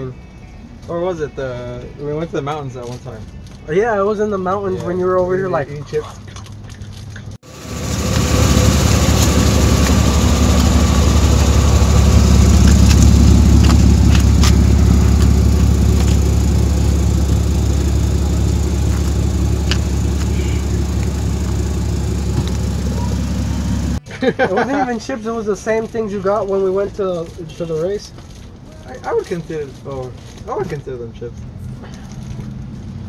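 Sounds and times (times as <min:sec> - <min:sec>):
car engine idling: 0:07.4 - 0:24.0.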